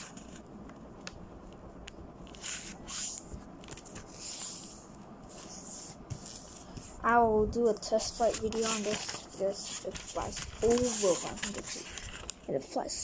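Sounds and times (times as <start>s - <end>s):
paper folding ticks: 8.1s - 12.4s.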